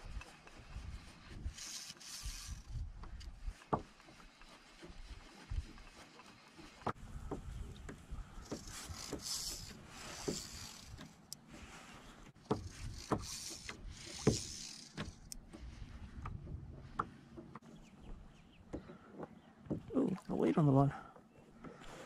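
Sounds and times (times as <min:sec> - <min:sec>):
fly reel whirring: 0:01.5 - 0:02.7, 0:08.5 - 0:11.0, 0:12.5 - 0:15.4.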